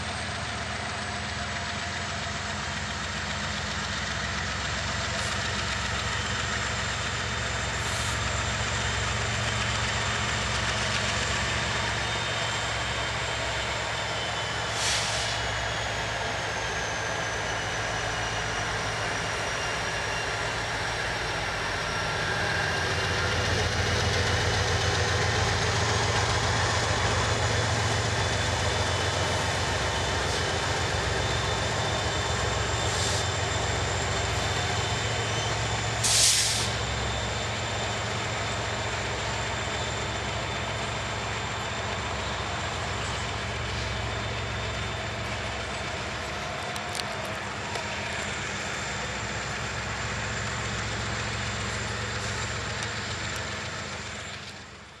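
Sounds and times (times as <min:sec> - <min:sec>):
diesel locomotive engine drone: 0:00.0 - 0:55.0
freight train rolling past: 0:00.0 - 0:55.0
short sharp hiss: 0:14.8 - 0:15.4, 0:36.0 - 0:36.8.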